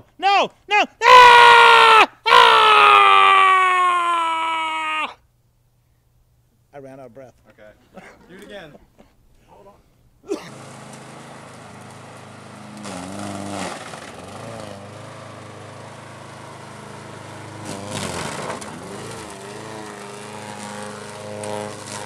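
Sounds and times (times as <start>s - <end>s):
lawn mower engine running: 10.3s - 22.0s
mower blade chopping watermelon: 10.3s - 22.0s.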